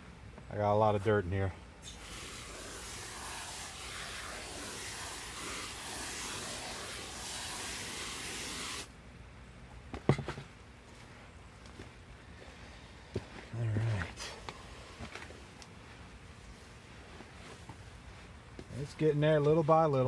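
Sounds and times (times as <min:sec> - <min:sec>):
hose spray hissing: 0:01.8 - 0:08.9.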